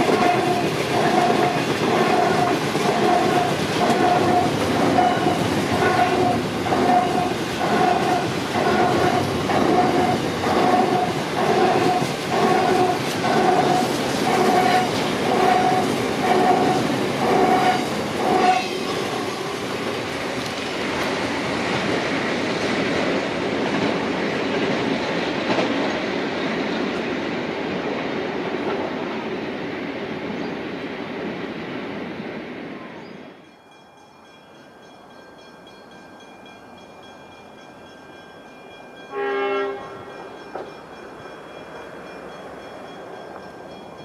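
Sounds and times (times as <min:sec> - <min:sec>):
freight train wheels clattering: 0:00.0 - 0:29.0.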